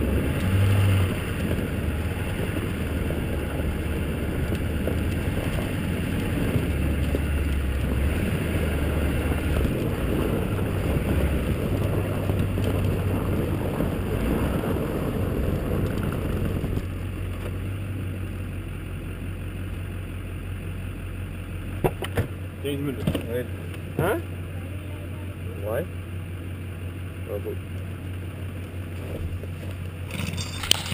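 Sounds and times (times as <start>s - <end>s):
wind noise: 0.0s - 16.9s
diesel truck engine running: 0.0s - 30.9s
tyre noise on snowy road: 0.0s - 30.9s.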